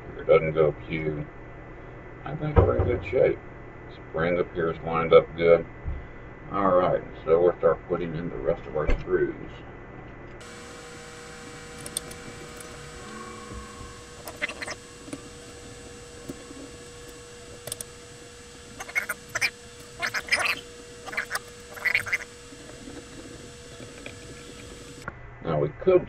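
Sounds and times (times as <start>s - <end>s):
faint steady hum: 0.0s - 26.0s
screwdriver scraping metal: 10.4s - 25.1s.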